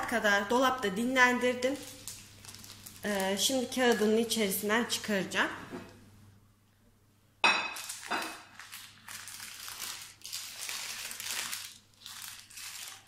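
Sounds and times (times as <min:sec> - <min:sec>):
baking paper crinkling: 0:00.0 - 0:05.1, 0:07.7 - 0:13.0.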